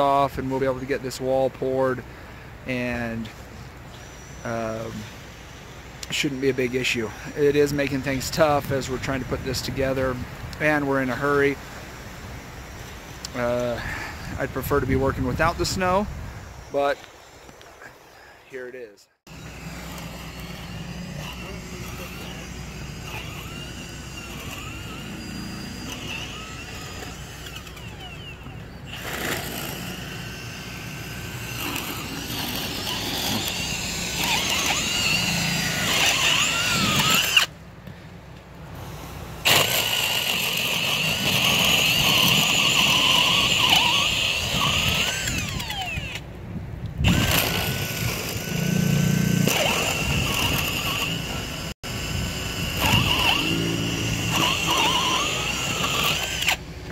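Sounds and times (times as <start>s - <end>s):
cordless drill boring through plywood: 2.3s - 18.1s, 19.3s - 37.5s, 38.8s - 46.3s, 47.0s - 56.9s.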